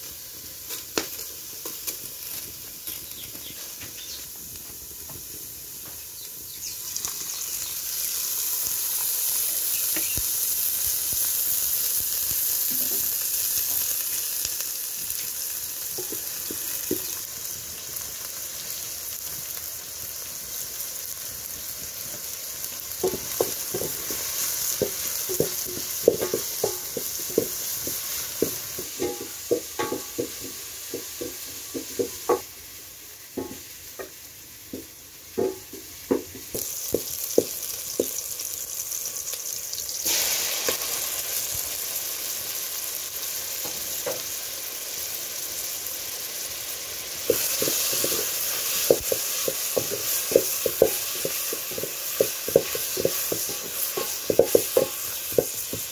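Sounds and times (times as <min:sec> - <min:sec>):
onions sizzling in hot oil: 0:00.0 - 0:55.9
spoon knocking and scraping pot: 0:16.0 - 0:17.1, 0:23.0 - 0:32.5, 0:33.4 - 0:34.1, 0:35.4 - 0:38.1, 0:47.3 - 0:55.9.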